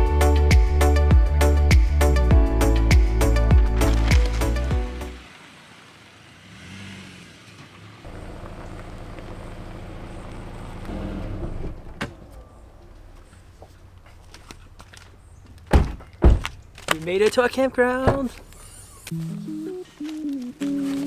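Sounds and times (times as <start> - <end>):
car engine running low: 3.8 - 13.9.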